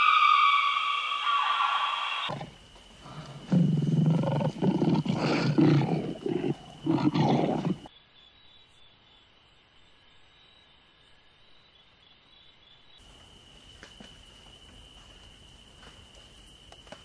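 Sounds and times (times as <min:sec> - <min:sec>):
lion roaring: 0:03.5 - 0:07.9.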